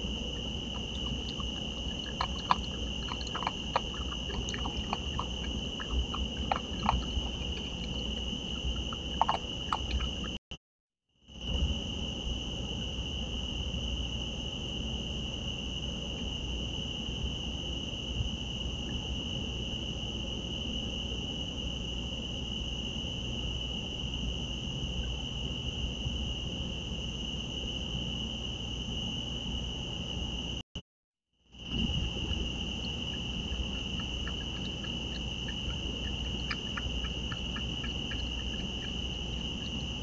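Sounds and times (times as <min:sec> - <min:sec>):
low background hiss: 0:00.0 - 0:10.2, 0:32.0 - 0:40.0
crickets trilling: 0:00.0 - 0:10.4, 0:11.3 - 0:30.6, 0:31.5 - 0:40.0.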